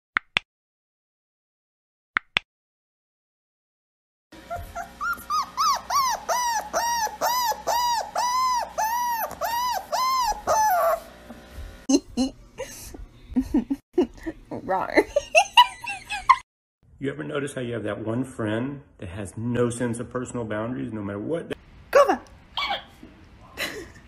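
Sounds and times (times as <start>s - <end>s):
puppy whimpering cries: 4.4s - 11.1s.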